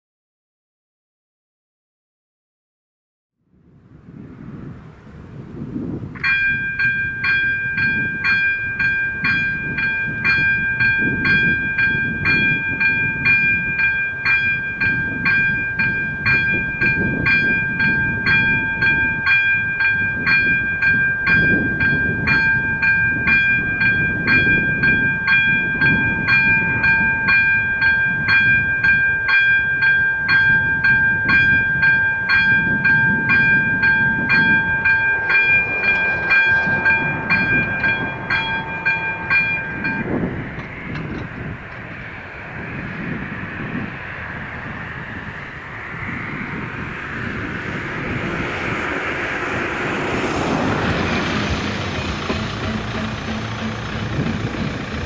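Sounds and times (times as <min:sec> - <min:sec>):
electronic level-crossing bell ringing: 0:06.2 - 0:40.4.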